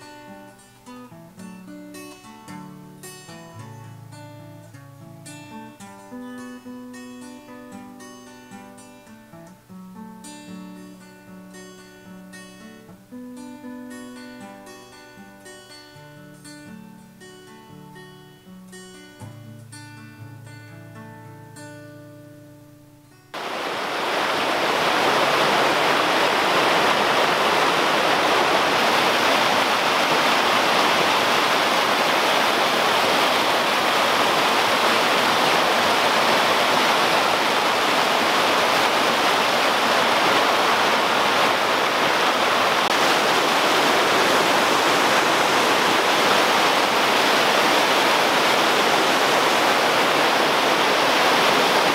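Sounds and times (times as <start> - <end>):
acoustic guitar music: 0.0 - 23.4
waterfall over rocks: 23.4 - 51.9.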